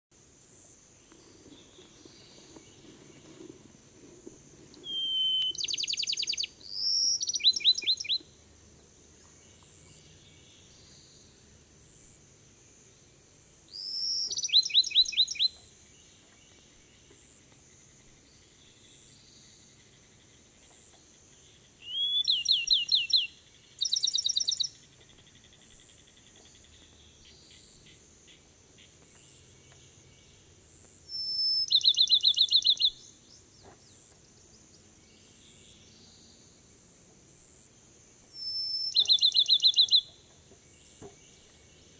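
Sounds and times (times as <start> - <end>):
sparrow singing whistled trills: 4.7 - 8.3, 13.7 - 15.7, 21.8 - 25.2, 31.1 - 33.2, 38.3 - 40.2.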